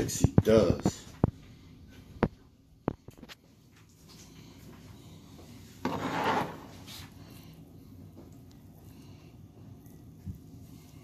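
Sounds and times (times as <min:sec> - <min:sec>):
ribs scraping on cutting board: 0:05.7 - 0:07.3.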